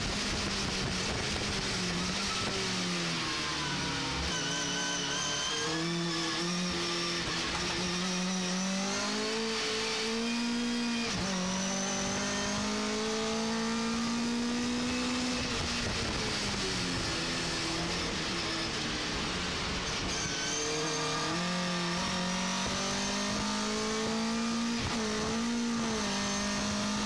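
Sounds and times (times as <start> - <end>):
engine revving at high revs: 4.1 - 18.8, 20.1 - 27.0.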